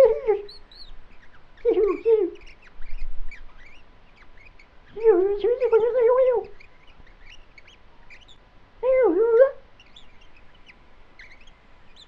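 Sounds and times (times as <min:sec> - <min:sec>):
high-pitched gibberish voice: 0:00.0 - 0:00.5, 0:01.7 - 0:02.4, 0:04.9 - 0:06.6, 0:08.8 - 0:09.6
faint high chirps: 0:00.0 - 0:08.5, 0:09.4 - 0:12.0.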